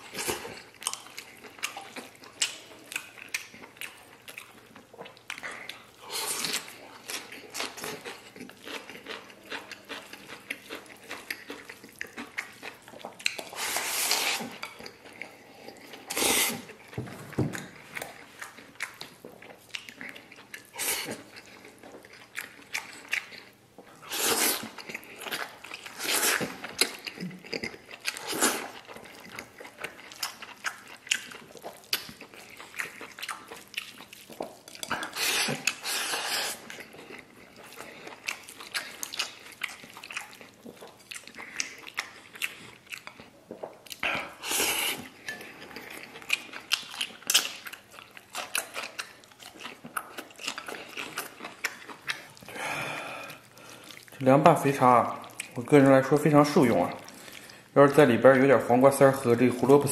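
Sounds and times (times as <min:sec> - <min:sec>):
person chewing food: 0:00.0 - 0:57.8
slurping food: 0:13.4 - 0:14.6, 0:15.8 - 0:16.7, 0:24.0 - 0:26.7, 0:34.8 - 0:36.8, 0:44.1 - 0:46.1.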